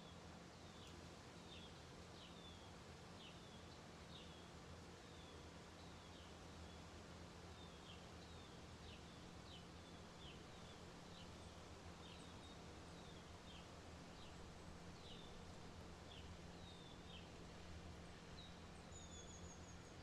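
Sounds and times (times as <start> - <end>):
low room hum: 0.0 - 20.0
small bird chirping: 18.4 - 20.0.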